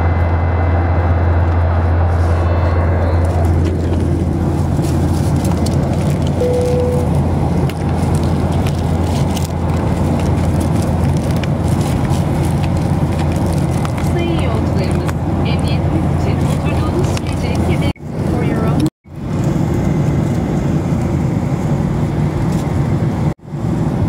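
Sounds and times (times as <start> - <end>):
airliner cabin engine roar: 0.0 - 24.0
single tone: 2.2 - 3.5, 6.4 - 7.2.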